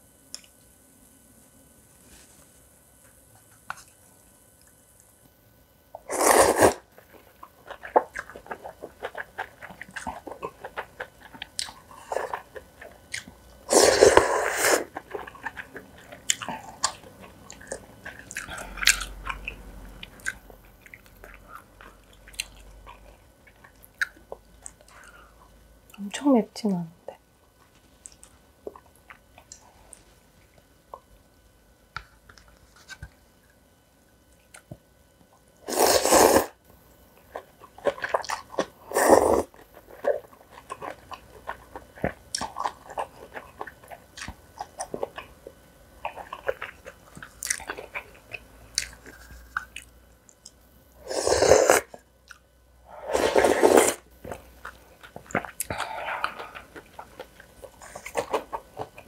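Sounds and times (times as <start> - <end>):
loud noodle slurps: 6.1 - 6.8, 13.7 - 14.9, 35.7 - 36.6, 51.0 - 51.9, 53.0 - 54.0
chewing with wet clicks: 7.4 - 13.6, 14.9 - 25.2, 28.0 - 30.0, 37.2 - 38.7, 39.5 - 50.6, 52.2 - 52.5, 54.2 - 59.0.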